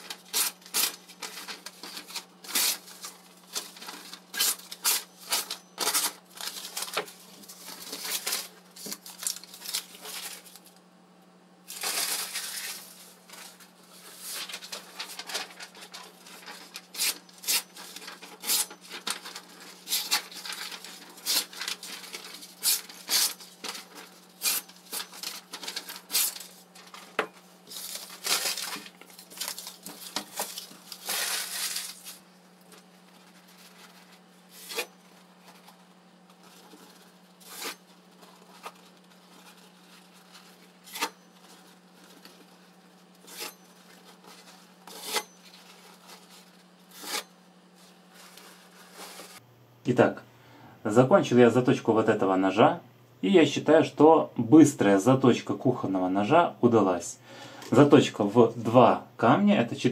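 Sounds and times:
knife slicing paper: 0.2s - 10.6s, 11.7s - 27.1s, 27.7s - 32.2s, 32.8s - 35.8s, 36.4s - 42.6s, 43.2s - 47.3s.

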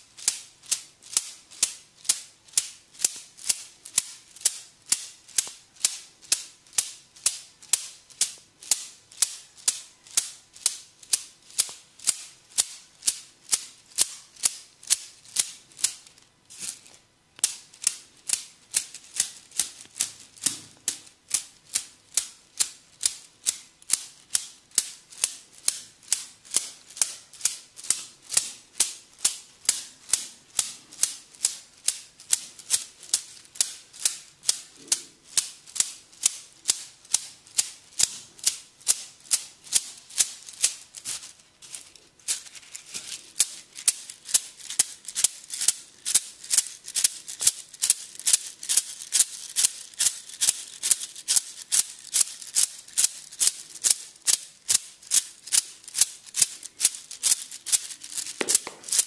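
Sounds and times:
bamboo sticks tapping on body: 58.3s - 59.0s.

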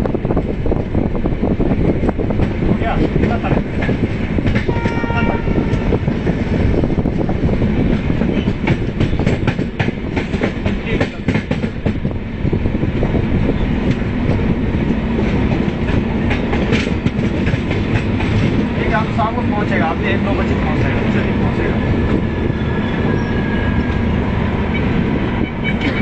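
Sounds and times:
train rumble: 0.0s - 26.0s
wind rush: 0.0s - 26.0s
train horn blast: 4.6s - 6.1s, 24.6s - 26.0s
wheels clicking over rail joints: 13.8s - 18.9s.

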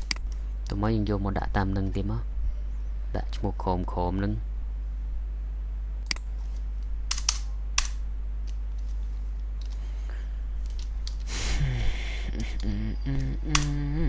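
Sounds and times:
steady low hum: 0.0s - 14.0s
man speaking: 0.7s - 2.3s, 3.1s - 4.5s.

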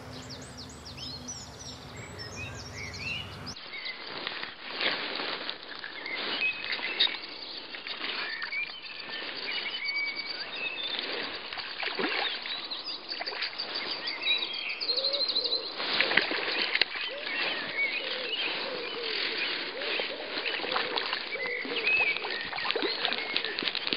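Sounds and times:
small birds singing and chirping: 0.0s - 4.0s, 12.2s - 15.8s, 16.9s - 20.7s, 21.3s - 23.9s
steady outdoor background noise: 0.0s - 4.4s.

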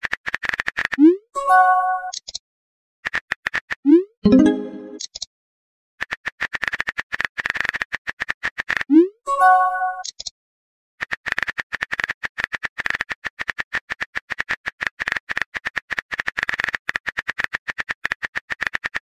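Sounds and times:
simulated keyboard typing clicks: 2.0s - 2.4s, 10.0s - 10.3s
electronic message-sent chime: 4.3s - 5.0s, 9.3s - 10.0s.

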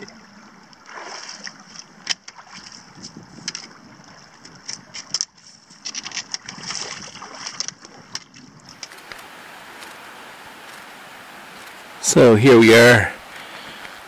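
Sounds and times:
splashing steps through water: 0.8s - 5.2s, 5.8s - 14.0s
trekking poles clicking on stones: 4.4s - 11.9s
steady hiss: 8.8s - 14.0s.

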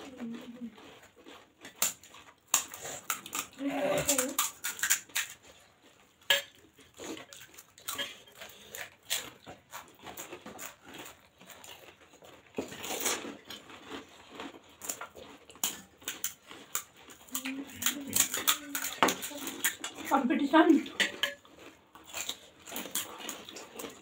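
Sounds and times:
fried puris cracking: 0.0s - 24.0s
steel dishes and spoons clinking: 6.2s - 8.7s, 15.6s - 20.2s, 20.8s - 21.5s.

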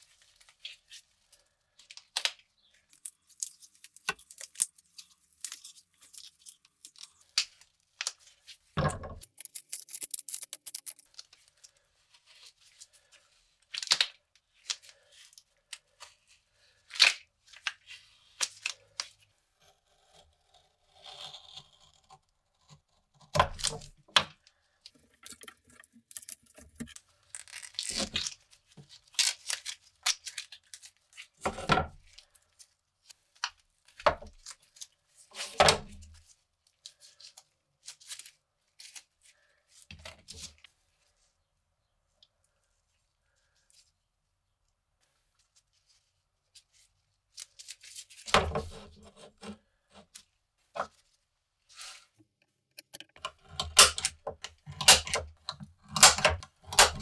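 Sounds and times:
tape peeling and tearing: 2.1s - 8.4s, 9.2s - 11.7s, 25.2s - 31.4s.

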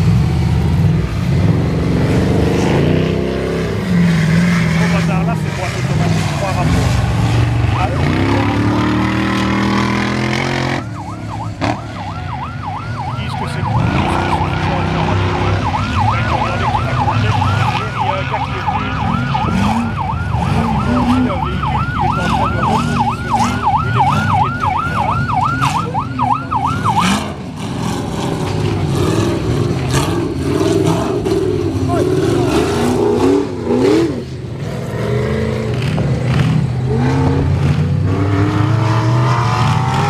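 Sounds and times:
race vehicle engines revving: 0.0s - 40.0s
electronic siren yelping: 9.5s - 27.4s.

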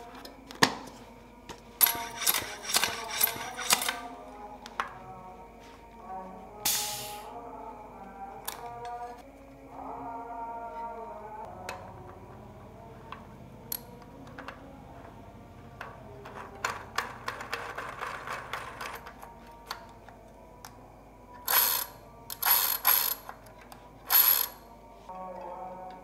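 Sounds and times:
bicycle freewheel ratchet clicking: 1.8s - 4.0s, 21.4s - 23.3s, 24.1s - 24.6s.

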